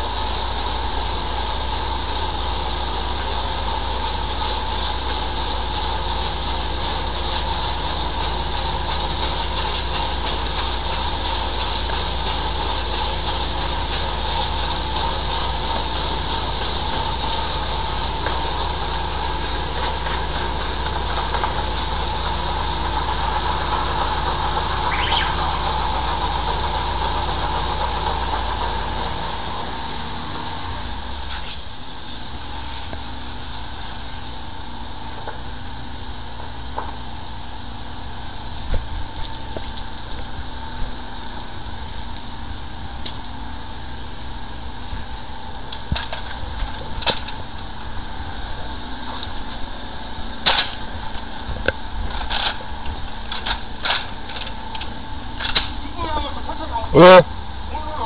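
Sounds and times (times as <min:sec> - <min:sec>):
hiss of spraying water: 0:00.0 - 0:58.0
low machine drone: 0:00.0 - 0:58.0
hose knocking and clacking: 0:45.7 - 0:47.6, 0:50.4 - 0:55.8.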